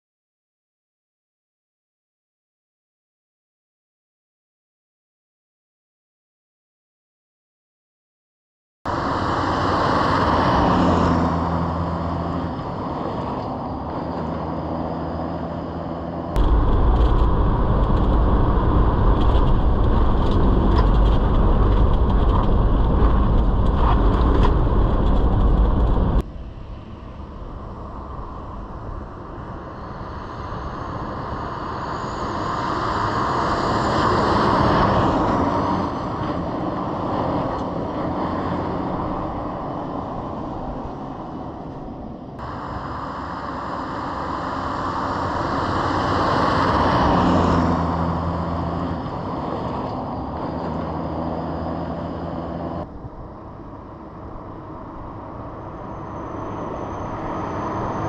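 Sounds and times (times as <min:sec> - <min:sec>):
vehicle engine and tyres rumbling: 0:08.9 - 0:58.0
rattles and knocks in cabin: 0:16.4 - 0:26.2.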